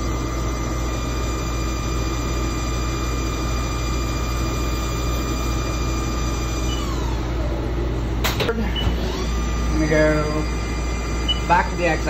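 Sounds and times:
lathe spindle high-pitched whine: 0.0 - 12.0.

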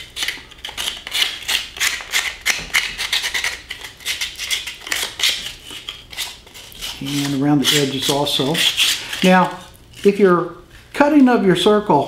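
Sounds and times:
sandpaper rubbing on wood: 0.7 - 10.2.

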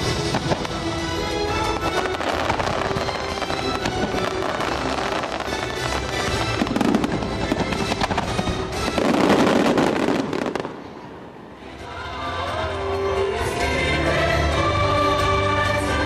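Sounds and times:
loud show music: 0.0 - 10.7, 11.6 - 16.0
fireworks bangs and crackle: 0.0 - 11.3
soft gliding melody: 0.0 - 16.0.

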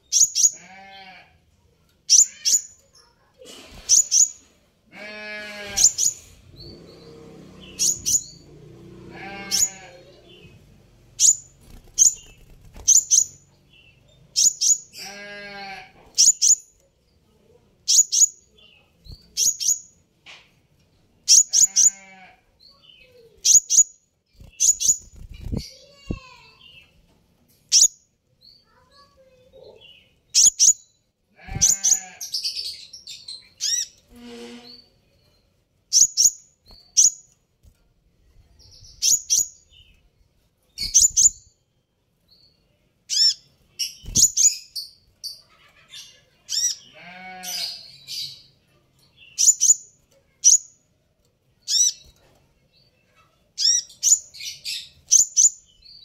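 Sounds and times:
bird high sharp chirps: 0.0 - 0.7, 2.1 - 3.1, 3.7 - 4.5, 5.6 - 8.5, 11.2 - 15.3, 16.1 - 16.8, 17.9 - 18.5, 19.1 - 20.0, 21.2 - 22.1, 22.7 - 26.9, 27.7 - 28.8, 29.9 - 35.0, 35.9 - 37.4, 38.7 - 40.0, 40.7 - 41.6, 43.1 - 48.5, 49.2 - 50.7, 51.6 - 52.2, 53.6 - 56.0.

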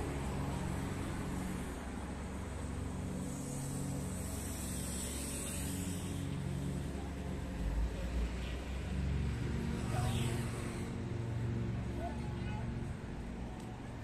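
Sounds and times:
high hiss: 0.0 - 7.6
vehicle engines droning: 0.0 - 14.0.

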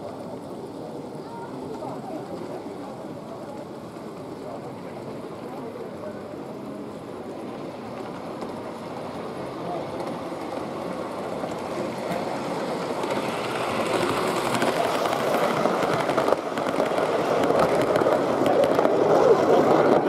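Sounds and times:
model train wheels clattering on rail: 7.6 - 20.0.

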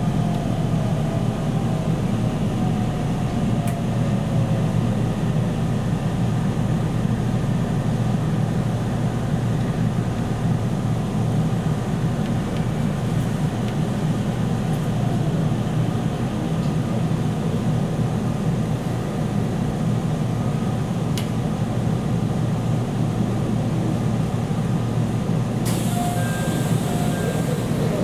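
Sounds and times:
train cabin rumble: 0.0 - 28.0
pneumatic doors hissing: 25.6 - 28.0.

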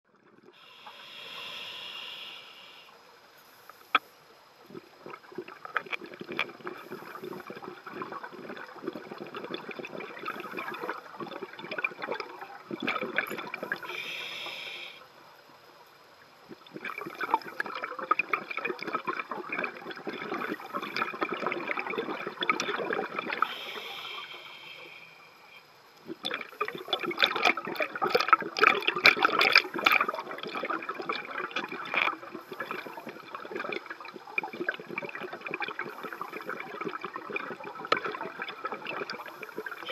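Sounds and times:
regulator hissing inhale: 0.5 - 4.1, 13.6 - 15.1, 23.4 - 25.7
bubbling exhaust bubbles: 4.6 - 14.0, 16.4 - 24.4, 26.0 - 39.9.

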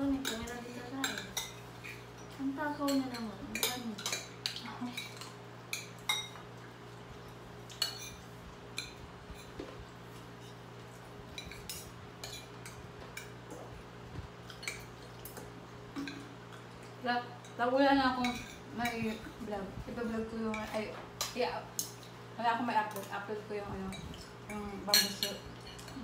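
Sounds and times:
cutlery clinking on plates: 24.9 - 26.0.

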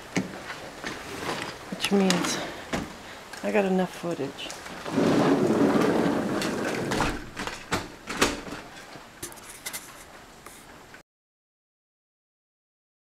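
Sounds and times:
heavy rain: 4.4 - 7.4.

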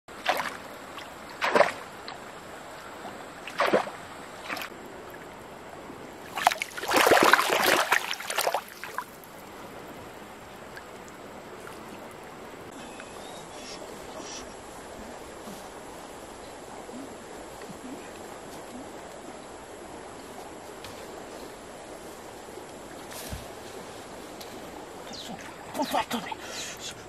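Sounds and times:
fish splashing in water: 0.1 - 1.9, 3.4 - 4.7, 6.2 - 9.2.

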